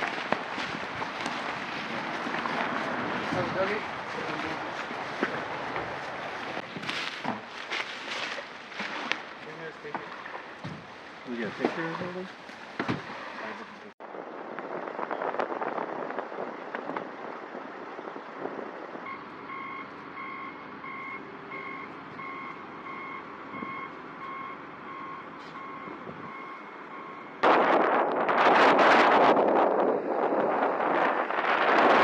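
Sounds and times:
wind on microphone: 0.0s - 7.2s, 10.7s - 19.6s, 25.9s - 26.6s, 27.3s - 32.0s
backup alarm beeping: 19.0s - 27.4s.

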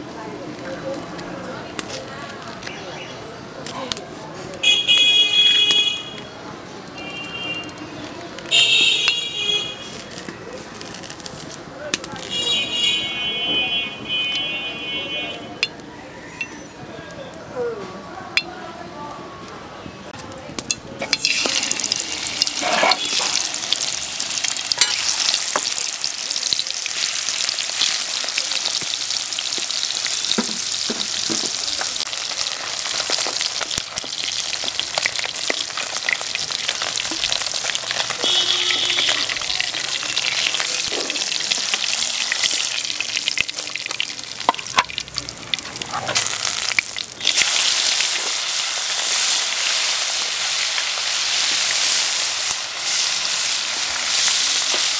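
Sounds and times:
fish sizzling in hot oil: 20.6s - 54.9s
metal spatula scraping: 22.4s - 23.5s, 24.7s - 25.4s.

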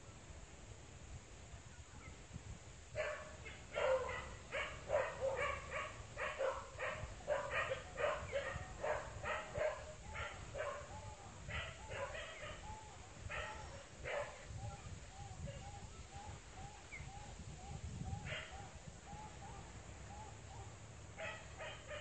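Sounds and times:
dog barking: 3.0s - 14.5s, 18.2s - 18.7s, 20.6s - 22.0s.

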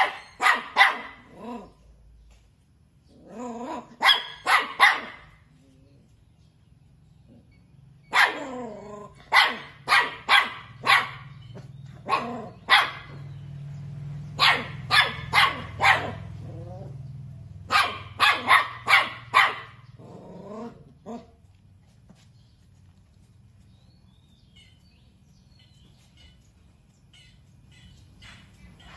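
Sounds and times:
puppies yapping: 0.0s - 1.8s, 7.3s - 13.6s, 14.2s - 21.3s.

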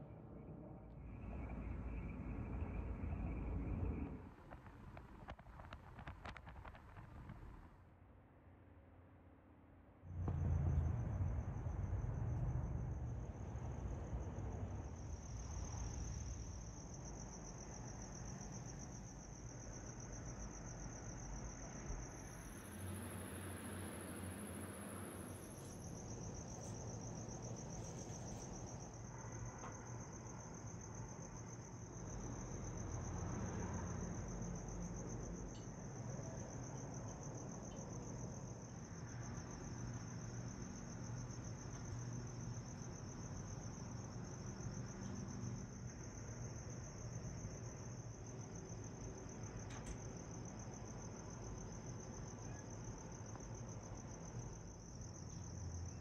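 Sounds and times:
crickets trilling: 0.8s - 6.8s, 10.3s - 56.0s
low background rumble: 10.0s - 29.3s.

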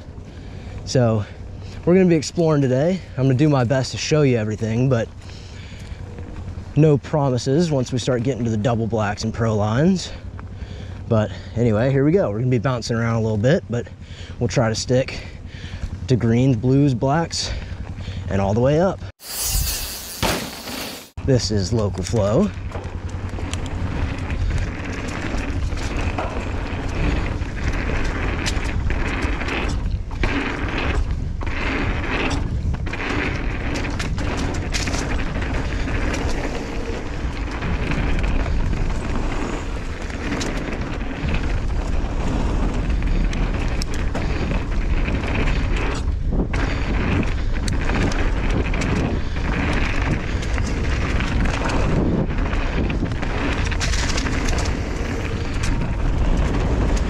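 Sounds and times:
bike rattling clicks and knocks: 0.0s - 11.9s, 21.2s - 57.0s
tyres rolling over dirt: 0.0s - 18.9s, 20.3s - 57.0s
wind buffeting microphone: 21.3s - 57.0s.

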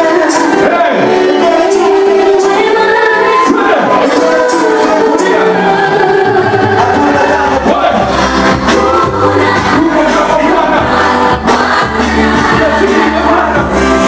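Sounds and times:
group singing gospel: 0.0s - 14.0s
steady bass line: 3.7s - 14.0s.

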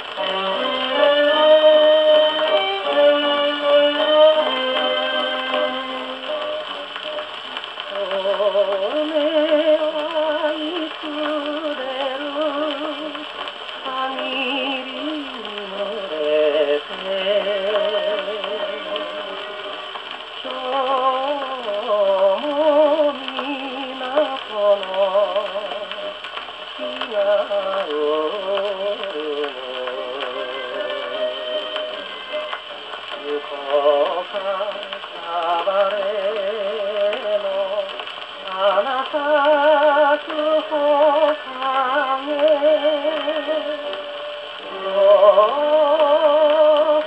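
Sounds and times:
instrumental accompaniment: 0.0s - 9.0s, 25.8s - 35.9s
man singing with vibrato: 0.0s - 32.5s, 33.1s - 47.0s.

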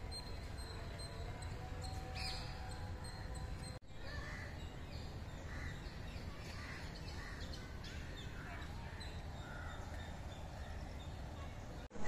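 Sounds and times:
crows cawing: 5.5s - 5.8s, 6.5s - 8.5s.

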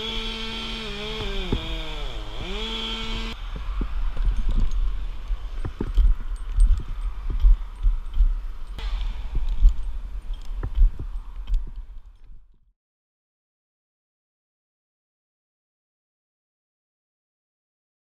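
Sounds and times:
chainsaw engine running: 0.0s - 3.4s.

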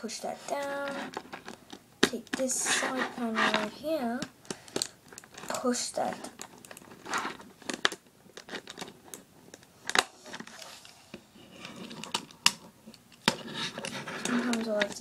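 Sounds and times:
soft handling scrapes: 0.1s - 1.5s, 2.4s - 3.9s, 13.3s - 15.0s.

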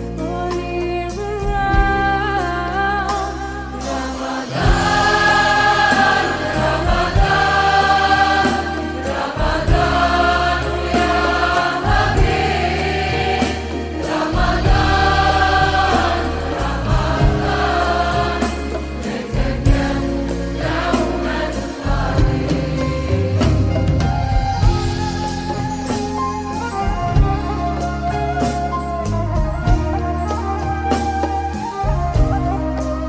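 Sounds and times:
bass: 0.0s - 33.0s
lead singing voice: 3.6s - 24.2s.

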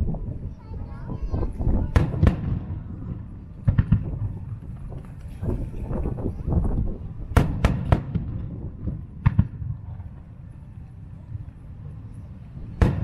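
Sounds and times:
sharp cracks: 1.9s - 5.3s, 7.3s - 10.3s
firework shells bursting: 7.3s - 9.6s.

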